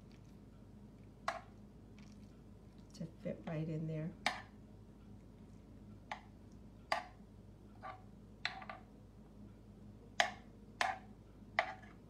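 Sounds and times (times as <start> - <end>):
metal spoon clicking on muffin pan: 10.2 - 11.0.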